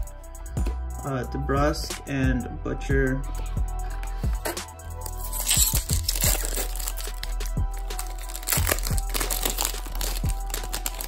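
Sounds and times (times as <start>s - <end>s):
background music: 0.0s - 11.0s
foil card pack crinkling: 5.0s - 11.0s.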